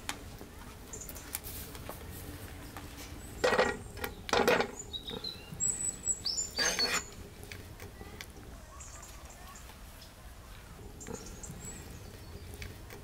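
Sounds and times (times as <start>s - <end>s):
small birds chirping: 0.5s - 1.5s, 2.2s - 13.0s
wooden spoon pushing butter in pan: 6.6s - 7.1s.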